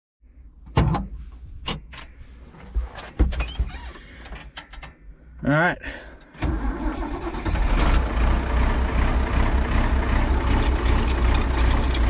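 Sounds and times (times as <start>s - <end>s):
tractor engine starting and idling: 6.2s - 12.0s.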